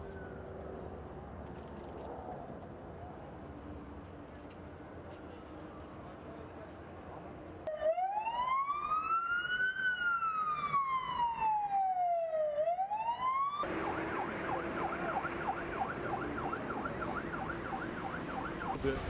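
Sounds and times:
vehicle noise: 0.0s - 7.7s, 13.5s - 19.0s
emergency vehicle siren: 7.6s - 18.9s.

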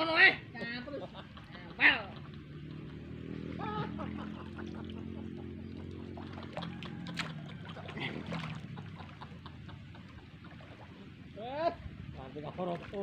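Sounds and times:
water splashing and trickling: 0.0s - 13.0s.

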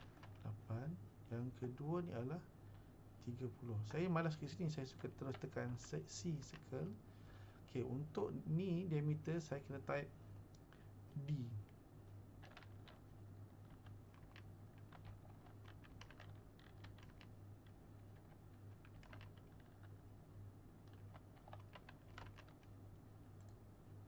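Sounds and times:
keyboard typing: 0.0s - 0.6s, 3.8s - 7.0s, 12.4s - 20.0s, 20.8s - 23.6s.

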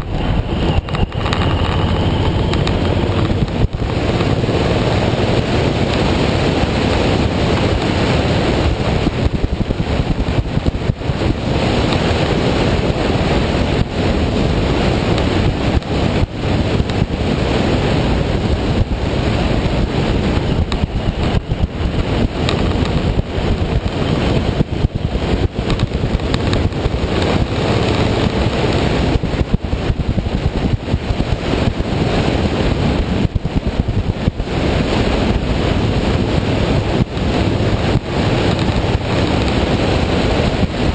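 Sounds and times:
motorcycle running: 0.0s - 40.9s
wind buffeting microphone: 0.0s - 40.9s.

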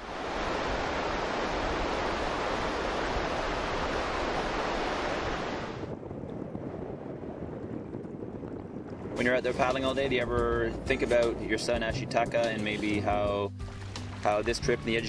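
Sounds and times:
river rapids rushing: 0.0s - 5.8s
wind: 0.0s - 15.0s.

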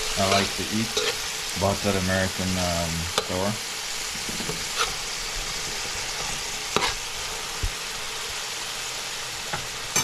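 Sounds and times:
metal spoon scraping pan: 0.0s - 1.3s, 4.2s - 5.0s, 6.2s - 7.1s
vegetables sizzling in oil: 0.0s - 10.0s.

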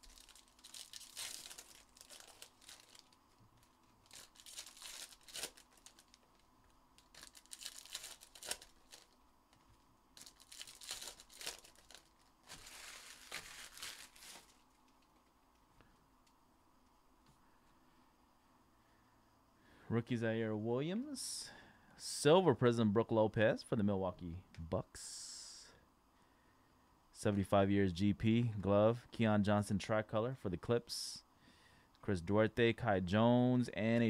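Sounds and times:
foil wrappers crinkling and tearing: 0.0s - 6.4s, 7.0s - 9.2s, 10.2s - 14.8s.

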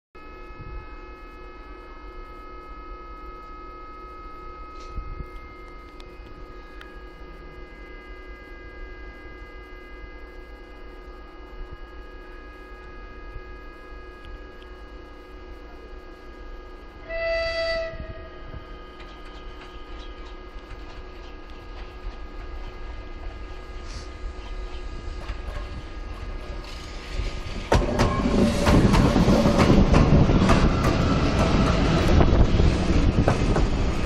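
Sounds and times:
locomotive horn blast: 0.2s - 10.6s, 16.9s - 18.9s
locomotive whine and hum: 0.2s - 34.0s.

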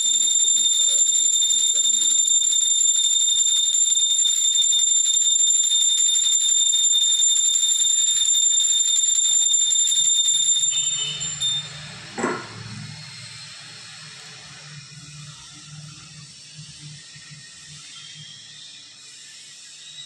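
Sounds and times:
hand bell ringing rapidly: 0.0s - 11.9s.

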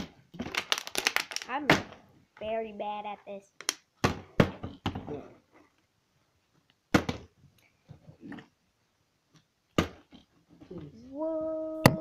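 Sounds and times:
sharp knocks and thuds: 4.0s - 5.2s, 6.9s - 7.4s, 9.7s - 10.2s.

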